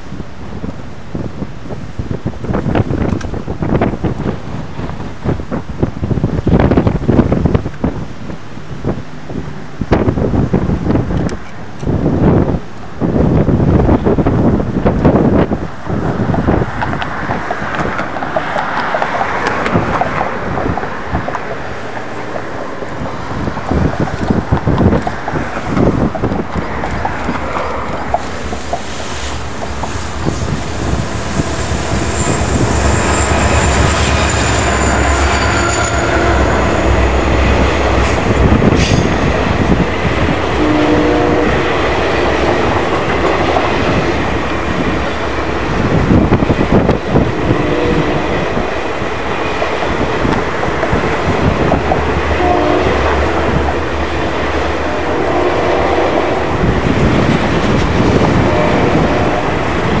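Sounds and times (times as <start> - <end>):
diesel locomotive engine hum: 0.0 - 60.0
train wheels clicking on rails: 13.8 - 40.6, 41.4 - 55.0, 55.8 - 60.0.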